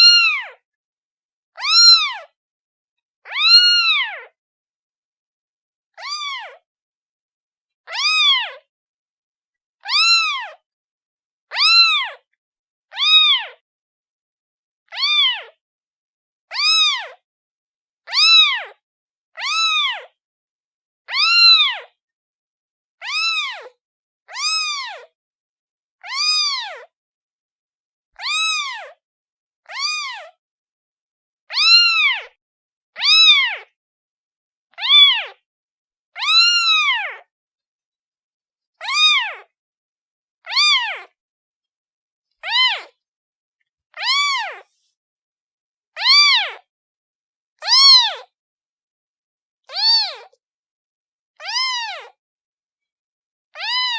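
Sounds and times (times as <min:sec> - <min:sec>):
kitten meowing: 0:00.0 - 0:00.5, 0:01.6 - 0:02.2, 0:03.3 - 0:04.3, 0:06.0 - 0:06.6, 0:07.9 - 0:08.6, 0:09.8 - 0:10.6, 0:11.5 - 0:12.2, 0:12.9 - 0:13.6, 0:14.9 - 0:15.5, 0:16.5 - 0:17.2, 0:18.1 - 0:18.7, 0:19.4 - 0:20.1, 0:21.1 - 0:21.9, 0:23.0 - 0:23.7, 0:24.3 - 0:25.1, 0:26.0 - 0:26.9, 0:28.2 - 0:29.0, 0:29.7 - 0:30.3, 0:31.5 - 0:32.4, 0:33.0 - 0:33.7, 0:34.7 - 0:35.4, 0:36.2 - 0:37.3, 0:38.8 - 0:39.5, 0:40.4 - 0:41.2, 0:42.4 - 0:43.0, 0:43.9 - 0:44.8, 0:46.0 - 0:46.7, 0:47.6 - 0:48.3, 0:49.7 - 0:50.4, 0:51.4 - 0:52.2, 0:53.6 - 0:53.9.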